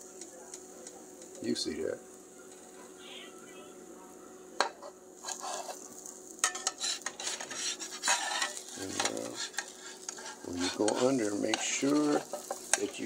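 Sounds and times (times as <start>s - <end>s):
light sizzling: 0.0s - 13.0s
spatula tapping and scraping pan: 6.4s - 13.0s.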